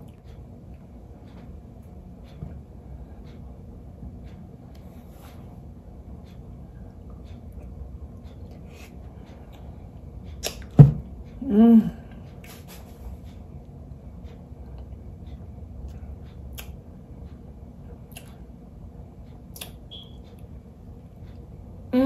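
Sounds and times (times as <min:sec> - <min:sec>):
person humming mmm: 0:11.4 - 0:12.2.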